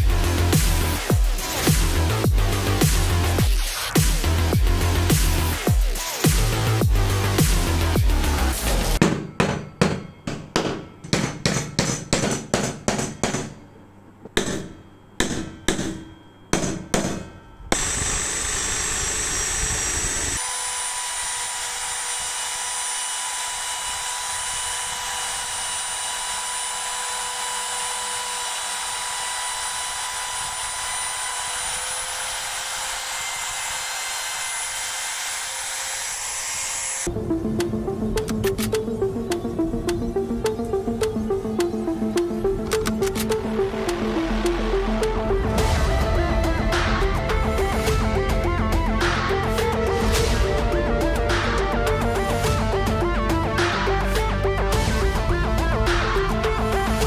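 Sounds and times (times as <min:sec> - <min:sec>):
sharp knocks: 0:09.0 - 0:13.6, 0:14.3 - 0:17.4
trim router whining: 0:17.7 - 0:57.0.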